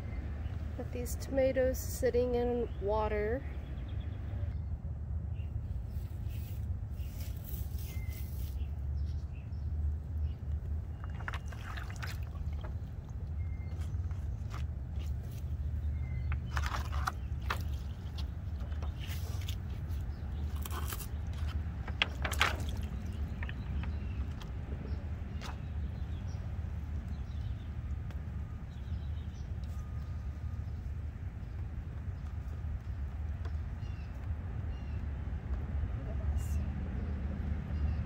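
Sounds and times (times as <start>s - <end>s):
steady low rumble: 0.0s - 38.0s
plants rustling and knocking: 10.9s - 26.2s.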